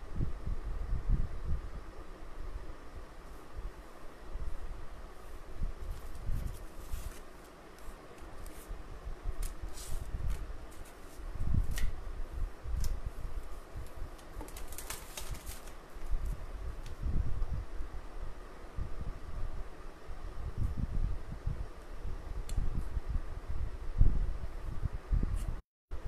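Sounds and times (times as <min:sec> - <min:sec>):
paper rustling and tapping: 0:13.8 - 0:15.8.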